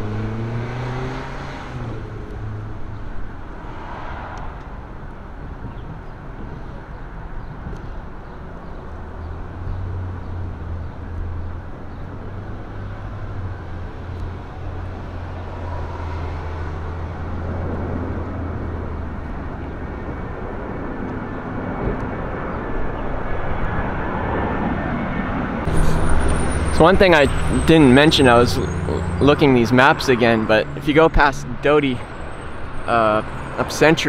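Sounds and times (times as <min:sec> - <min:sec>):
road traffic noise: 0:00.0 - 0:34.0
heavy diesel machinery drone: 0:21.6 - 0:34.0.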